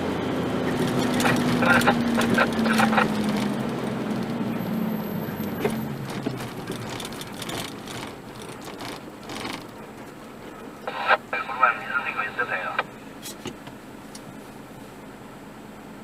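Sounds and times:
vehicle engine and road noise: 0.0s - 16.0s
steady hum: 10.5s - 13.2s.

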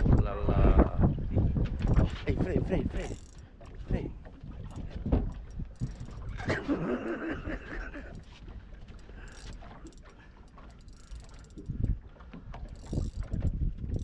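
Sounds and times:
fishing reel clicking and whirring: 1.8s - 14.0s.

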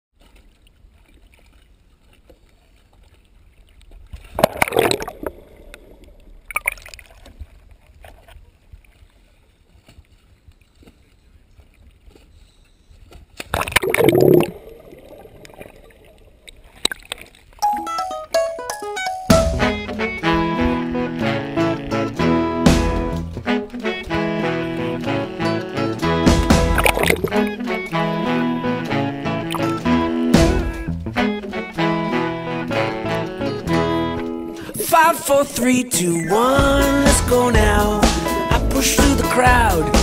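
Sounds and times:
water sloshing and splashing: 0.1s - 17.7s, 19.5s - 32.0s
loud splashes: 4.2s - 7.5s, 13.4s - 17.3s, 19.3s - 33.3s, 34.6s - 40.0s
plucked guitar music: 17.6s - 40.0s
low wind and water rumble: 19.5s - 35.0s.

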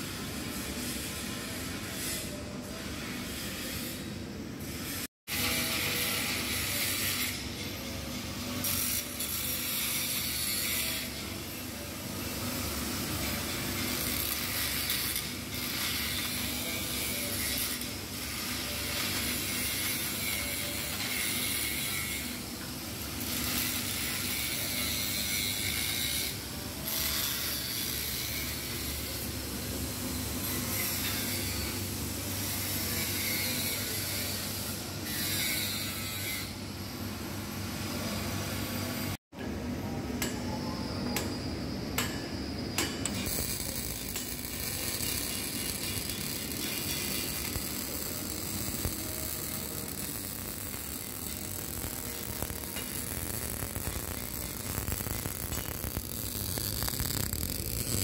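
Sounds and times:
angle grinder grinding metal: 43.2s - 58.0s.

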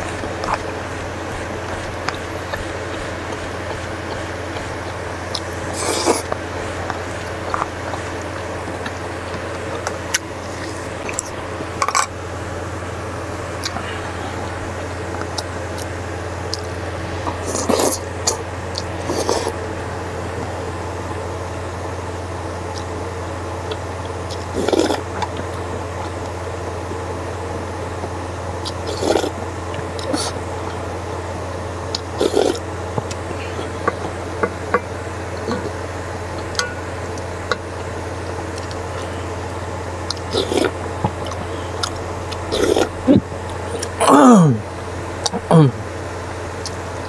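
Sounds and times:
man chewing and slurping: 0.0s - 12.2s, 13.2s - 19.6s, 23.6s - 26.4s, 27.5s - 46.0s
steady low hum: 0.0s - 47.0s
person slurping broth: 5.6s - 7.3s, 17.3s - 18.4s, 19.0s - 19.6s, 24.6s - 25.0s, 28.8s - 29.4s, 30.0s - 30.4s, 32.2s - 32.6s, 40.3s - 41.8s, 42.5s - 44.6s.

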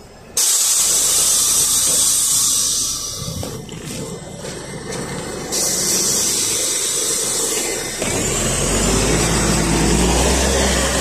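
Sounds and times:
bus engine pulling away: 0.0s - 11.0s
loud hiss of compressed air: 0.4s - 3.4s, 5.5s - 8.1s.

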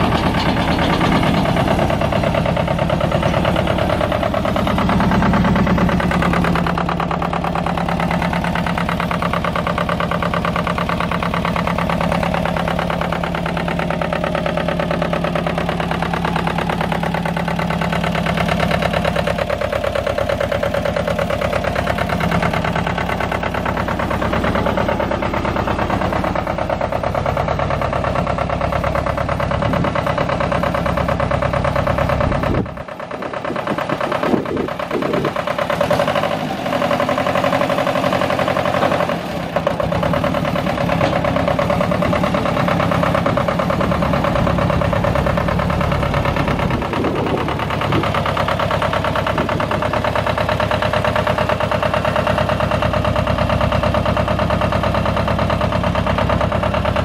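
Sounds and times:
diesel engine idling: 0.0s - 57.0s
engine clunks: 0.0s - 57.0s.

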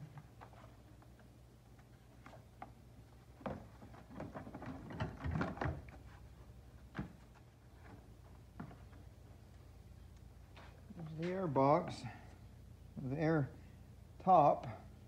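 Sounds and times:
plastic clattering and rattling: 3.4s - 6.1s.

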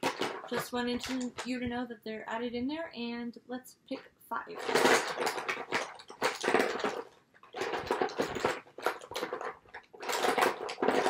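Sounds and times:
lipstick tubes clattering in a box: 0.0s - 1.6s, 4.5s - 11.0s.

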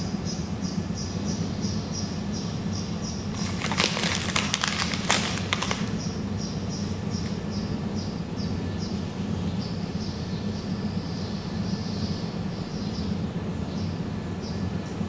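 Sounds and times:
wrappings crinkling: 3.3s - 6.2s.

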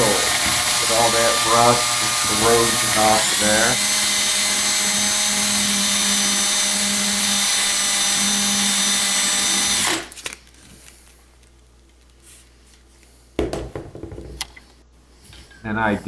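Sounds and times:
cordless drill whining: 0.0s - 10.2s.

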